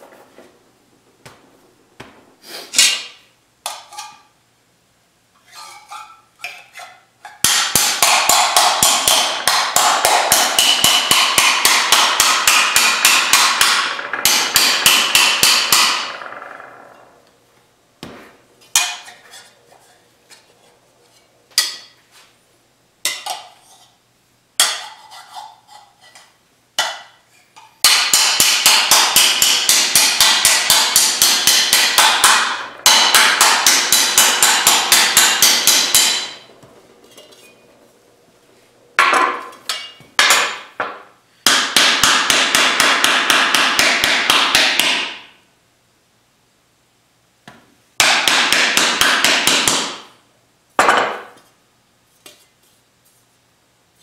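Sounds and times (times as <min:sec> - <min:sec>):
hammer beating steel: 0:07.4 - 0:16.4, 0:27.8 - 0:37.8, 0:39.0 - 0:45.3, 0:48.0 - 0:50.1.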